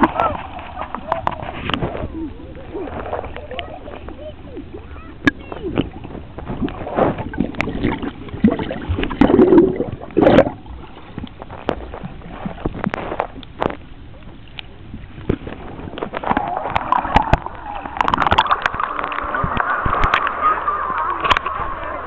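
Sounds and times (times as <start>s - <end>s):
underwater gurgling and sloshing: 0.0s - 22.0s.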